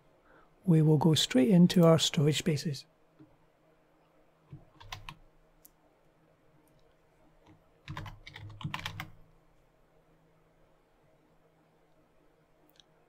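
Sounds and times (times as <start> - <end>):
keyboard typing: 4.5 - 5.2, 7.4 - 9.2.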